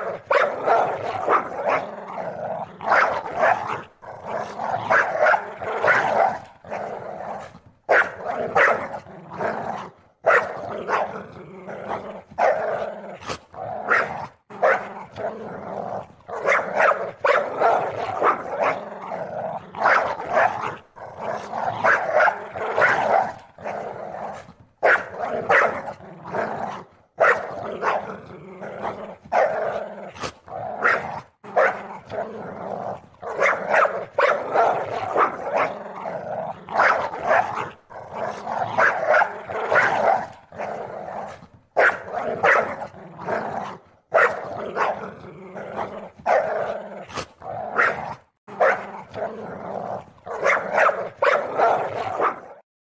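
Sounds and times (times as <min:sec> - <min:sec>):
puppy barks and yips: 0:00.0 - 0:01.8, 0:02.9 - 0:03.8, 0:04.8 - 0:06.5, 0:07.9 - 0:09.0, 0:10.2 - 0:11.2, 0:12.3 - 0:12.6, 0:13.9 - 0:14.9, 0:16.3 - 0:18.8, 0:19.8 - 0:20.8, 0:21.8 - 0:23.5, 0:24.8 - 0:26.0, 0:27.2 - 0:28.1, 0:29.3 - 0:29.6, 0:30.8 - 0:31.8, 0:33.3 - 0:35.7, 0:36.8 - 0:37.7, 0:38.7 - 0:40.4, 0:41.3 - 0:42.9, 0:44.1 - 0:45.0, 0:46.2 - 0:46.6, 0:47.8 - 0:48.9, 0:50.3 - 0:52.6
puppy growling: 0:00.0 - 0:52.7.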